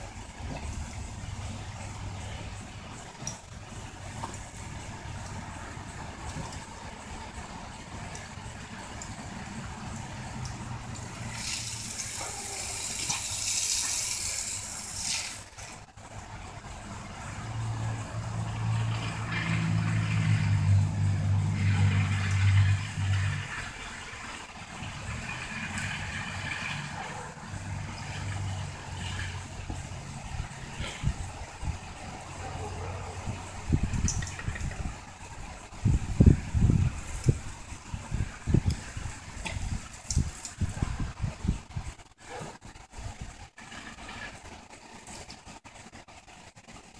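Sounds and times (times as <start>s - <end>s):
spraying water jet hiss: 0.0s - 46.9s
vehicle engine running: 15.8s - 40.0s.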